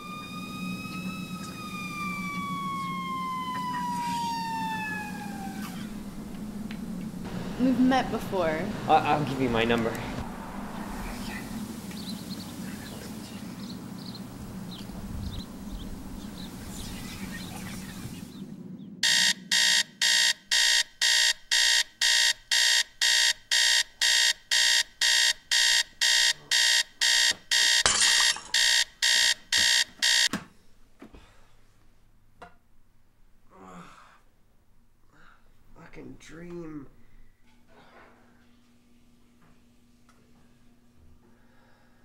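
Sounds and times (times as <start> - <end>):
alarm clock beeping: 19.0 - 30.3.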